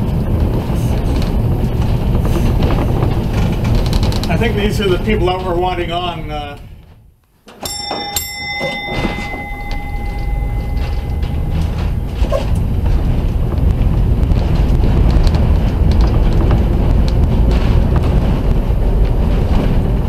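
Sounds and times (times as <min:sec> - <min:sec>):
streetcar rumbling on rails: 0:00.0 - 0:06.9, 0:07.7 - 0:20.0
streetcar gong ringing: 0:07.5 - 0:20.0.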